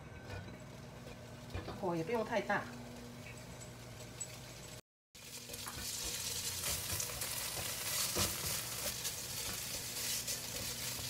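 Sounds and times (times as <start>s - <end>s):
tofu sizzling in oil: 4.2s - 11.0s
spatula scraping a pan: 5.3s - 11.0s.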